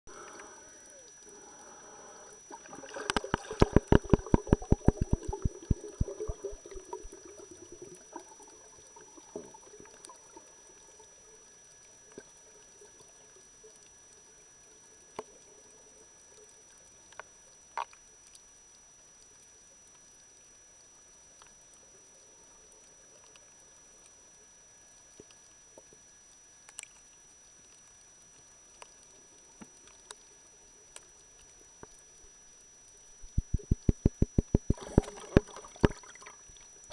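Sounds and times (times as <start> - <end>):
underwater gurgling: 0.1 - 17.9, 28.3 - 36.9
steady underwater hiss: 0.1 - 36.9
sharp underwater clicks: 2.9 - 7.2, 33.1 - 36.9.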